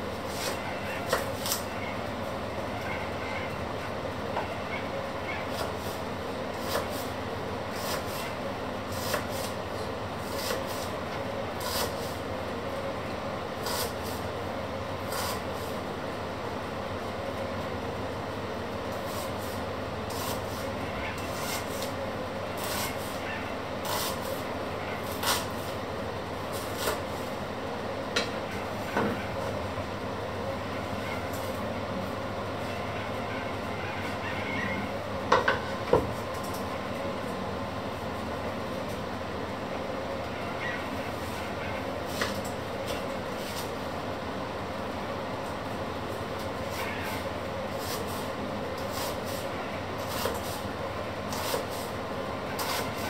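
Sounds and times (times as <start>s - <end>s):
knife slicing onion: 0.3s - 1.7s, 5.5s - 9.6s, 10.2s - 12.2s, 13.6s - 14.3s, 15.0s - 15.8s, 18.9s - 22.0s, 22.6s - 23.2s, 23.8s - 25.7s, 26.5s - 27.2s, 46.6s - 50.7s, 51.3s - 53.0s.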